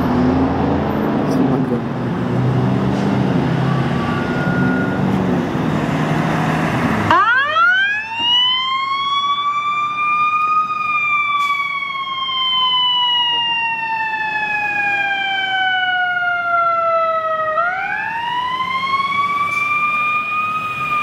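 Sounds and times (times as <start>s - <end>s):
ambulance engine running: 0.0s - 21.0s
electronic siren wailing: 3.5s - 5.2s, 7.1s - 21.0s.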